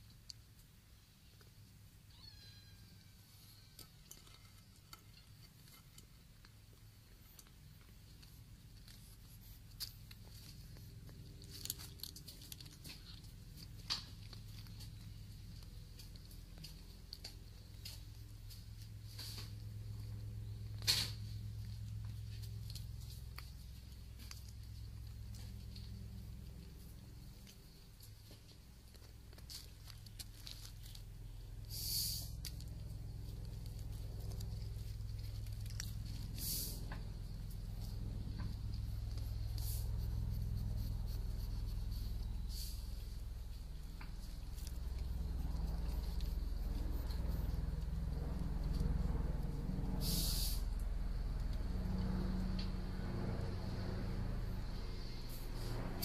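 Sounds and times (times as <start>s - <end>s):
cats eating with crunching clicks: 0.0s - 2.0s, 3.4s - 56.0s
low steady rumble: 0.0s - 56.0s
short hissy rustles: 31.7s - 32.4s, 36.3s - 37.0s, 39.2s - 43.2s, 50.0s - 50.8s
cat fur rubbing on microphone: 37.8s - 43.2s.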